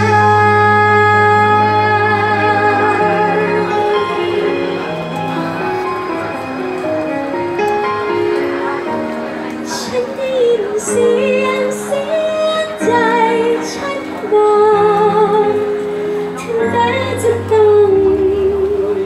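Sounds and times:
woman singing into microphone: 0.0s - 4.8s, 9.7s - 19.0s
instrumental accompaniment: 0.0s - 19.0s.

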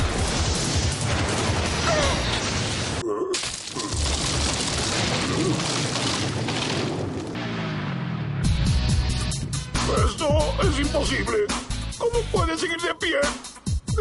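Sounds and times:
rock shattering crash: 0.0s - 7.6s
rumbling debris: 0.0s - 7.7s.

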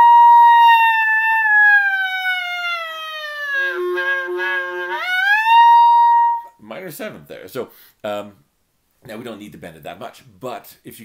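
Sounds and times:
clarinet note bending: 0.0s - 6.6s.

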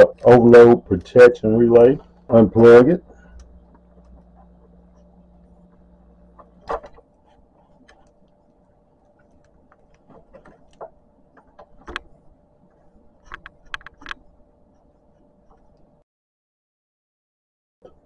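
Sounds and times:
faint steady hum: 0.0s - 16.0s
fingers clicking wire connectors: 13.2s - 14.2s.

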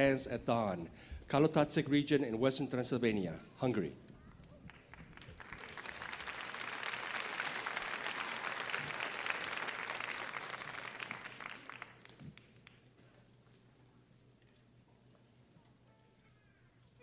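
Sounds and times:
audience applauding: 4.7s - 12.9s.

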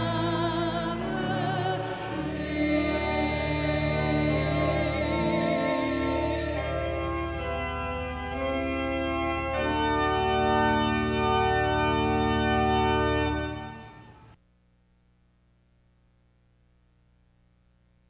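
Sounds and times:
organ chords: 0.0s - 14.4s.

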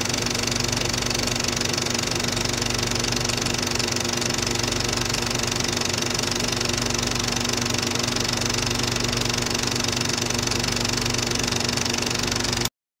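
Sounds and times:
film projector clattering: 0.0s - 12.7s.

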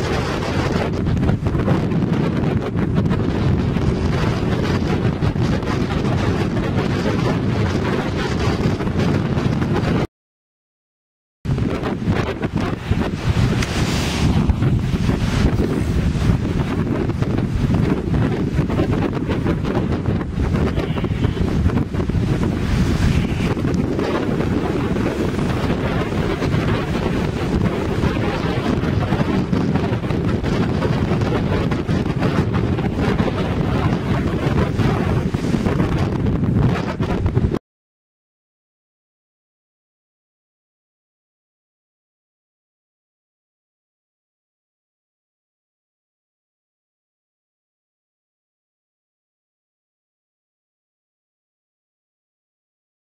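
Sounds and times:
heavy surf breaking: 0.0s - 10.1s, 11.5s - 37.6s
wind buffeting microphone: 0.0s - 10.1s, 11.5s - 37.6s.

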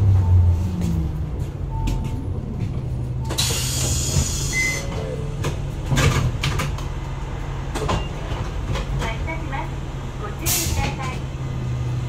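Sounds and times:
bus diesel engine humming: 0.0s - 12.0s
compressed air hiss: 3.4s - 4.6s.

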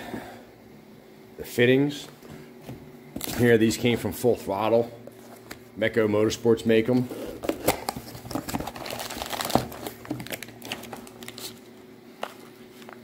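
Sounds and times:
plastic bags crinkling: 7.3s - 13.0s.

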